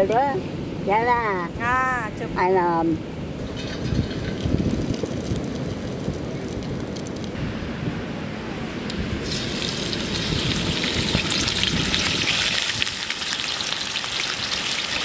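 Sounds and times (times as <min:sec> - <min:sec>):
fish sizzling in hot oil: 0:09.2 - 0:15.0.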